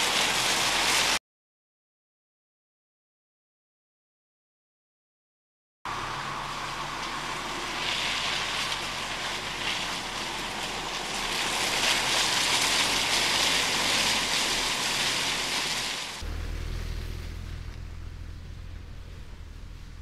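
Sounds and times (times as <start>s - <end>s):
tyres hissing on wet ground: 0.0s - 1.2s, 5.9s - 20.0s.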